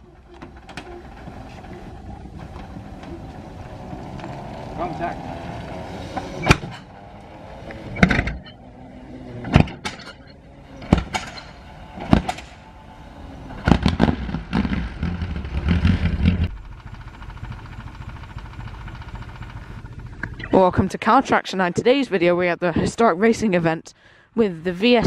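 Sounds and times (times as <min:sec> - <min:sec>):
steady hum: 0:00.0 - 0:22.0
racing car engines: 0:00.0 - 0:22.5
sharp cracks: 0:10.8 - 0:12.7, 0:13.6 - 0:20.4.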